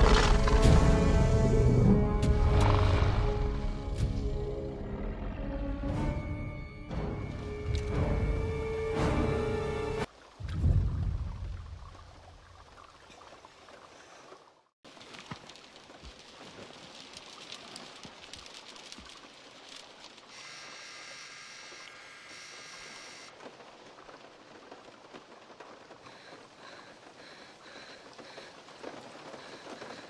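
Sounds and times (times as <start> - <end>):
rain pattering on a car: 14.9 - 21.0, 23.3 - 30.0.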